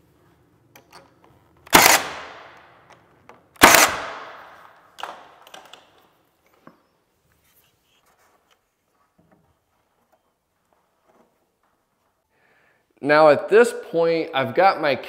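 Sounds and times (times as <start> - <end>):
nail gun firing into wood: 1.7 - 2.8, 3.6 - 5.8.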